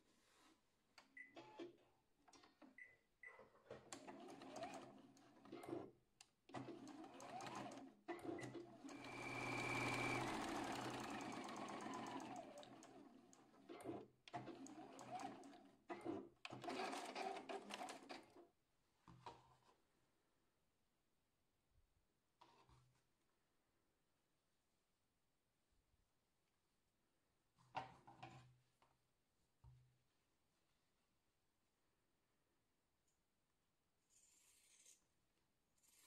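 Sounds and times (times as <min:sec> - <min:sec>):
sewing machine stitching: 0:03.8 - 0:05.9, 0:06.5 - 0:18.4.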